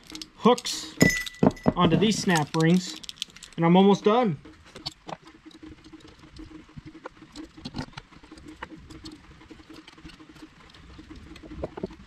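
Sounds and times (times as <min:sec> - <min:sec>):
small metal clicks and scrapes: 0:00.0 - 0:12.0.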